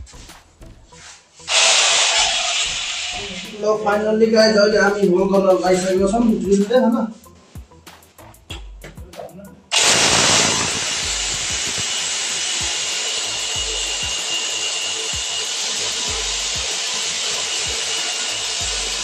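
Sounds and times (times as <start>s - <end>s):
hammer drill boring into tiled wall: 1.5s - 3.6s, 9.7s - 19.0s.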